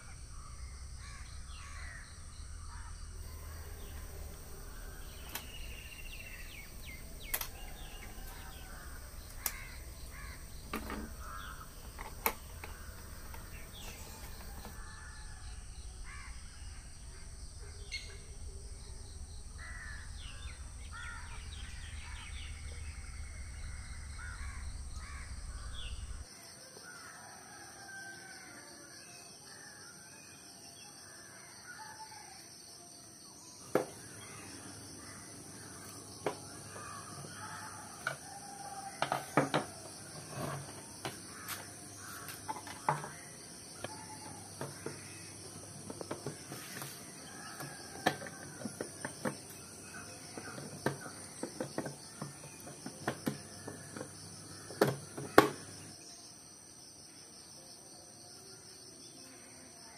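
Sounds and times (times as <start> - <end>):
birds calling: 0.0 - 26.3, 33.6 - 56.0
clicks and knocks on plastic case: 6.8 - 14.8.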